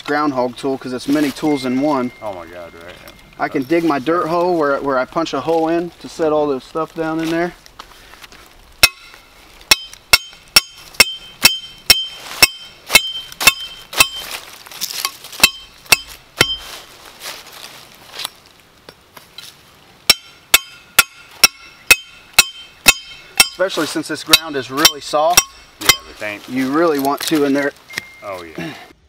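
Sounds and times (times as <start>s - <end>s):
hammering metal stake into ground: 8.8s - 16.8s, 20.1s - 26.2s.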